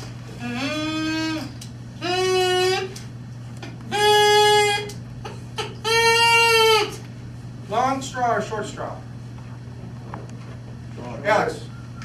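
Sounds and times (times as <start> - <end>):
straw blown notes: 0.4 - 3.0.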